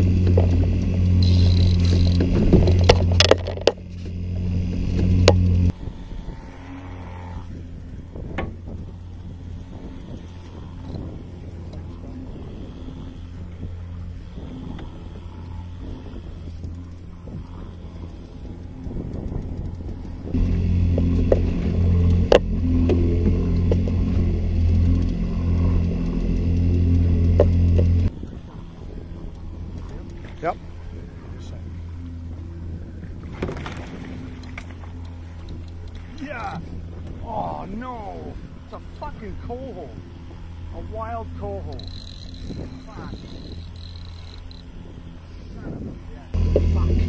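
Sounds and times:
outboard motor humming: 0.0 - 47.0.

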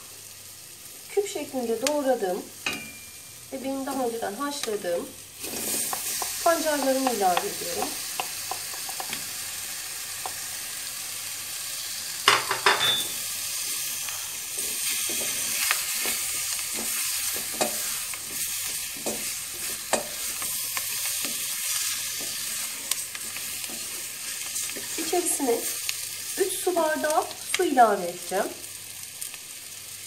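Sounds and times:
food sizzling in a pot: 0.0 - 30.0
wooden spoon stirring: 5.4 - 9.2, 14.1 - 25.8.

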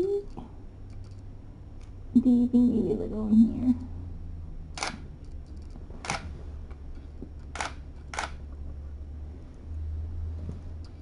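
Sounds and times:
camera shutter clicks: 4.8 - 5.0, 7.5 - 8.4.

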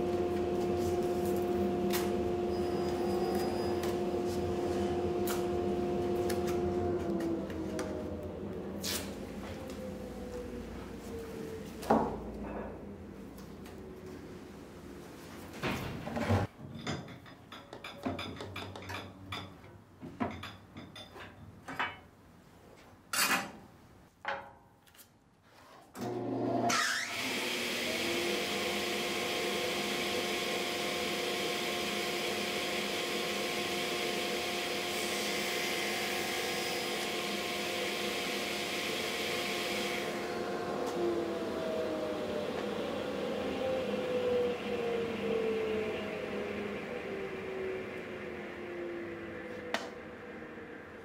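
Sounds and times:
table saw running: 0.0 - 10.1, 26.0 - 50.4.

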